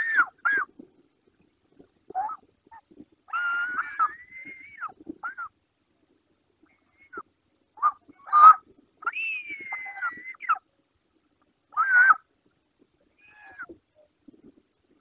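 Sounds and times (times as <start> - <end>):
eagles whistling calls: 3.3 - 5.5, 7.8 - 10.6.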